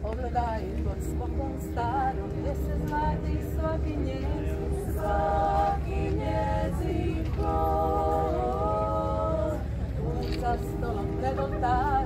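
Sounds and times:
women singing in close harmony: 0.3s - 12.0s.

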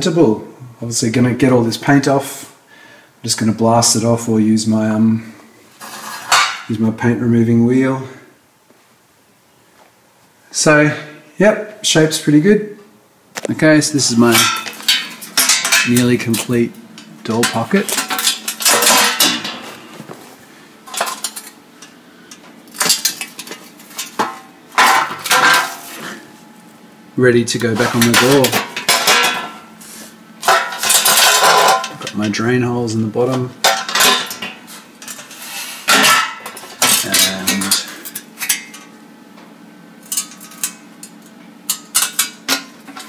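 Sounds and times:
steel clanking on concrete floor: 5.8s - 6.8s, 14.0s - 20.2s, 20.8s - 26.3s, 27.6s - 29.8s, 30.4s - 32.4s, 33.3s - 39.0s.

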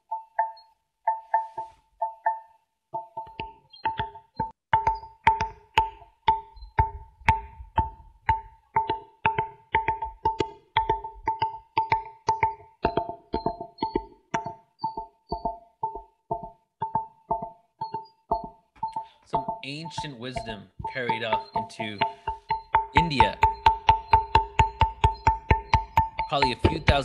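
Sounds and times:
stone pillars ringing when tapped: 0.0s - 27.0s.

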